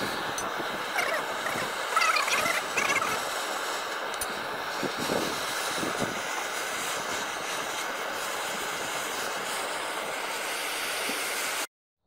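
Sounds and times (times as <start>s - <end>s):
blowtorch flame hissing: 0.0s - 11.7s.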